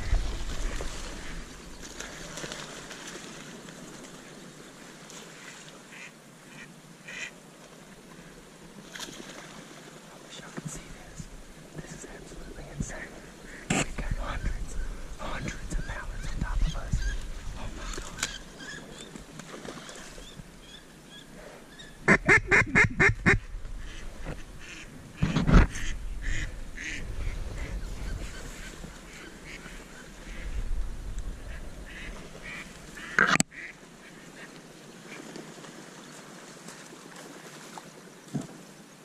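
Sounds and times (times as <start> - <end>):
ducks quacking: 5.4 - 7.3, 22.0 - 30.6, 31.4 - 34.5
duck giving rapid loud quacks: 22.1 - 23.4.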